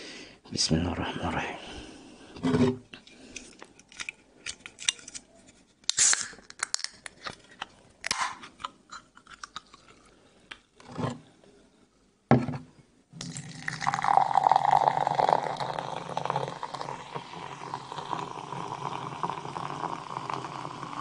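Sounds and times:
can clicking and crinkling: 5.8s - 10.0s
can opening with fizzing hiss: 5.9s - 7.0s
glass knocking on table: 12.3s - 12.6s.

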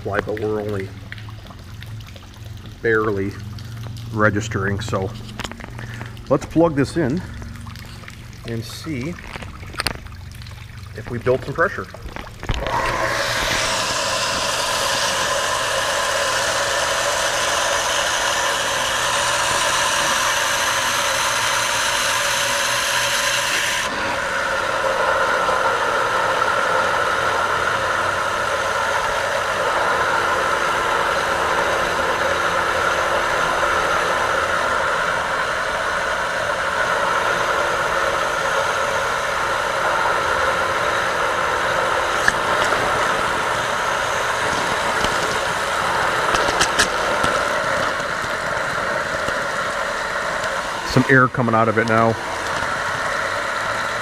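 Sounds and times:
water pump running: 0.0s - 54.0s
high hiss: 12.7s - 54.0s.

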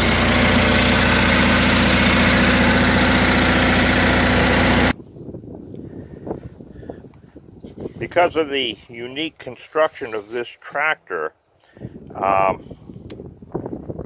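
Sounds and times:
garden tractor engine running: 0.0s - 5.0s.

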